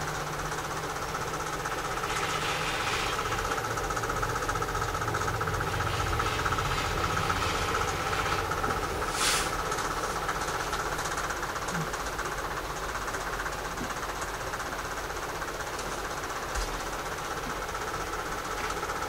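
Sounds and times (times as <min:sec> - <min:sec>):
machine hum with fast pulse: 0:00.0 - 0:19.0
rotary cutter cutting fabric: 0:01.7 - 0:04.5, 0:05.5 - 0:10.2.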